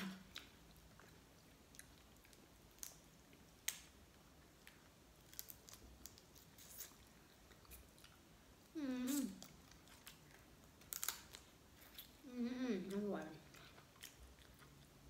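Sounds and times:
chewing: 0:00.0 - 0:03.8, 0:09.0 - 0:12.3, 0:12.9 - 0:15.0
lobster shell cracking: 0:10.8 - 0:11.4.

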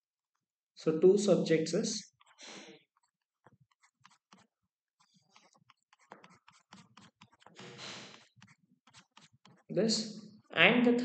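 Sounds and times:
stylus tapping on pen tablet: 0:05.3 - 0:07.6, 0:08.2 - 0:09.7.

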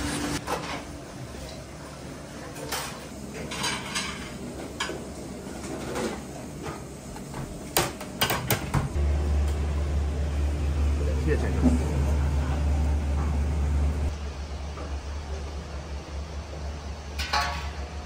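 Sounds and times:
pans and utensils clinking: 0:02.4 - 0:06.9, 0:17.2 - 0:18.0.

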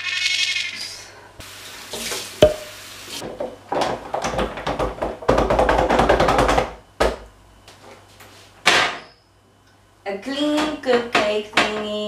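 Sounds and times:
dish clinking: 0:02.4 - 0:02.8.

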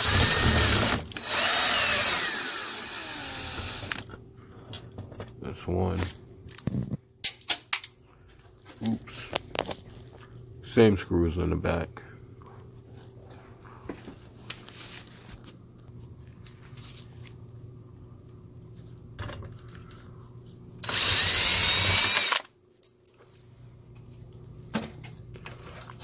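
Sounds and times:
cordless drill whining: 0:00.0 - 0:04.1, 0:20.8 - 0:22.5.

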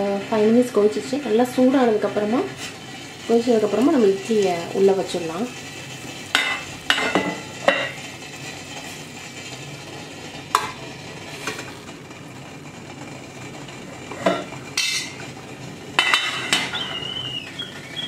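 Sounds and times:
steel lid clattering: 0:06.3 - 0:08.0, 0:14.1 - 0:15.2, 0:16.0 - 0:17.0.

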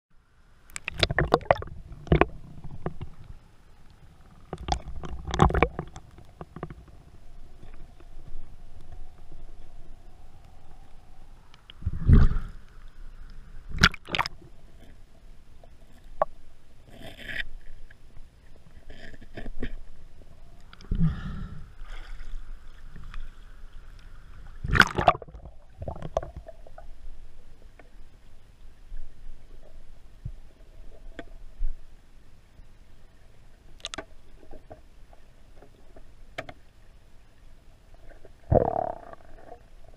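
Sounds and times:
underwater gurgling: 0:00.6 - 0:28.2, 0:37.8 - 0:39.9
underwater clicks and knocks: 0:00.7 - 0:03.4, 0:04.5 - 0:09.0, 0:24.7 - 0:26.6, 0:33.8 - 0:34.9, 0:35.6 - 0:36.6
low underwater rumble: 0:00.9 - 0:17.0.

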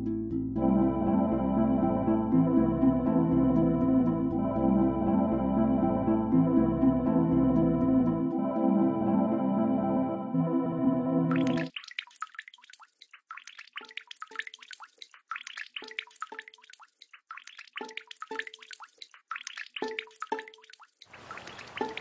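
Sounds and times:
ambient music: 0:00.0 - 0:11.7
deep pitched water plops: 0:11.3 - 0:22.0
water dripping: 0:11.3 - 0:22.0.

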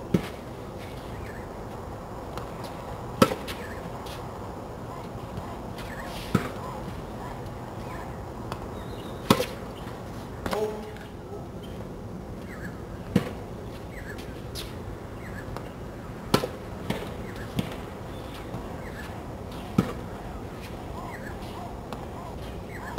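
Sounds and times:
tennis racket hitting ball: 0:09.2 - 0:09.6.

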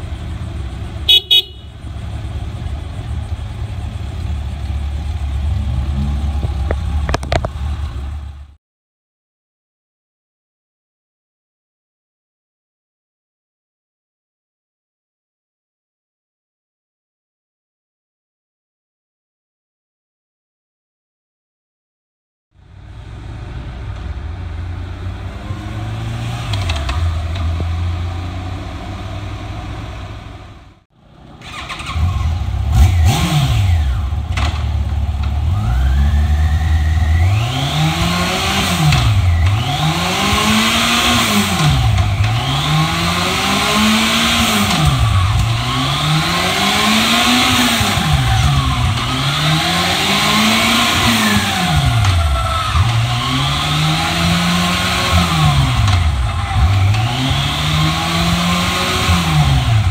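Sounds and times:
motorcycle engine revving: 0:00.0 - 0:08.6, 0:22.6 - 0:59.9.

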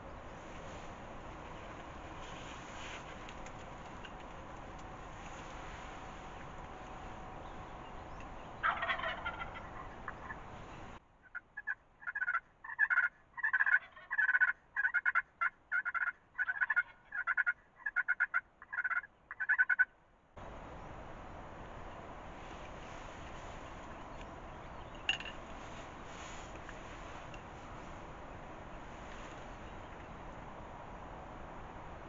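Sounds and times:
turkey calls: 0:07.5 - 0:20.0
turkey gobble: 0:08.6 - 0:10.5, 0:11.2 - 0:19.9.

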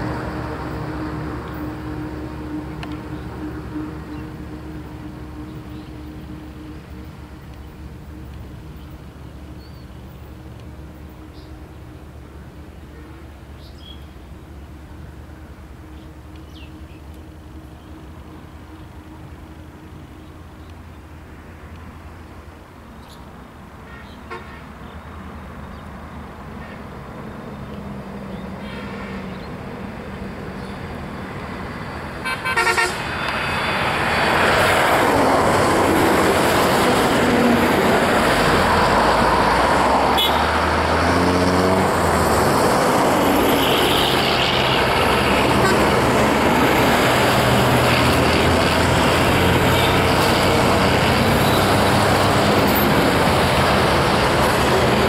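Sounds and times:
locomotive horn blast: 0:00.0 - 0:07.3, 0:23.9 - 0:24.8, 0:32.2 - 0:55.0
diesel train running: 0:00.0 - 0:55.0.

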